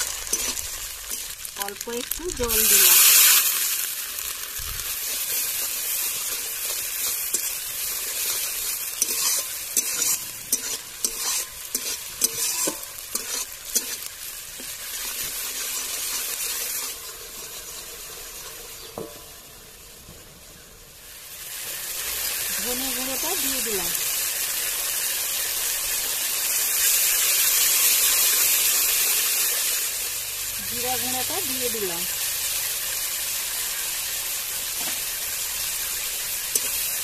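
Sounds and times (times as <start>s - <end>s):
spatula scraping a pan: 0.0s - 1.5s, 4.2s - 19.1s
onions sizzling in a pan: 0.0s - 37.0s.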